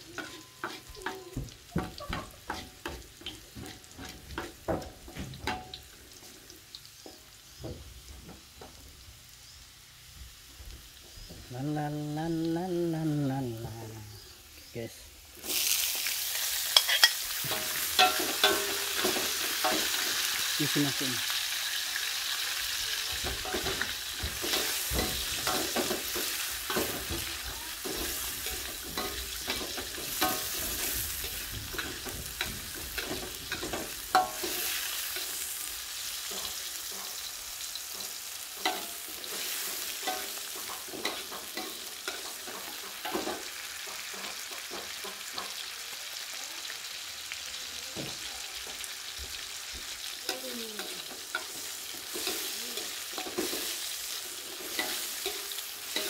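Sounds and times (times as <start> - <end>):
metal spatula scraping a pan: 0.0 - 4.5, 16.6 - 20.4, 23.2 - 45.6
eggplant sizzling in a wok: 0.0 - 56.0.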